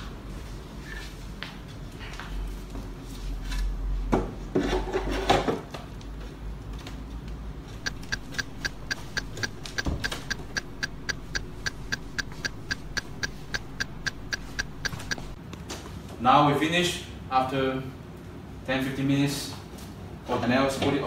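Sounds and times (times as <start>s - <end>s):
clock ticking: 7.8s - 15.4s.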